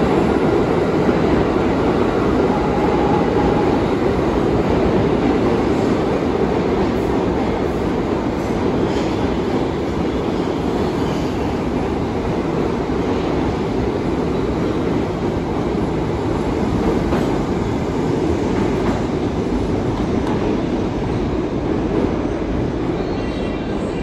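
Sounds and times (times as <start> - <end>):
subway train wheels rumbling on rails: 0.0 - 24.0.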